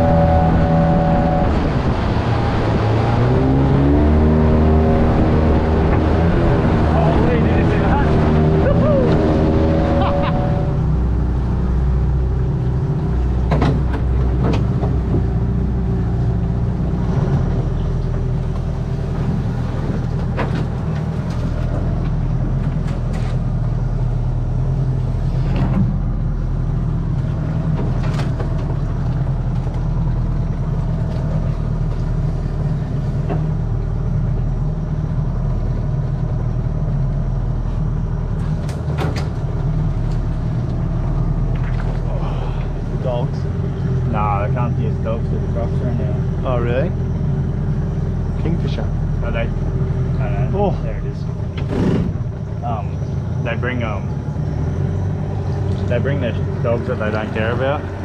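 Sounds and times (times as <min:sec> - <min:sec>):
branches scraping boat: 0:00.0 - 0:11.4, 0:13.1 - 0:26.0
outboard motor running: 0:00.0 - 0:58.0.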